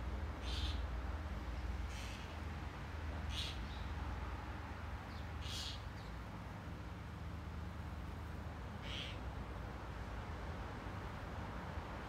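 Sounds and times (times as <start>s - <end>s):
bird calling: 0.4s - 0.8s, 3.3s - 3.7s, 5.4s - 5.8s, 8.8s - 9.2s.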